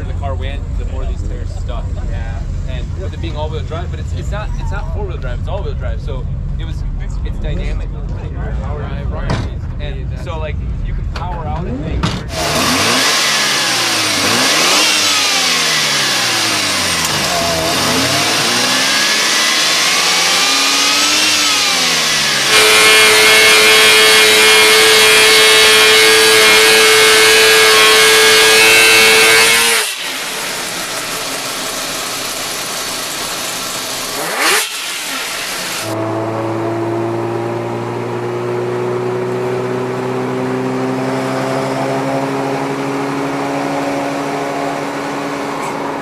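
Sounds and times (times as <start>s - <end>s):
engine at steady high rpm: 0.0s - 46.0s
rotary engine revving: 11.2s - 46.0s.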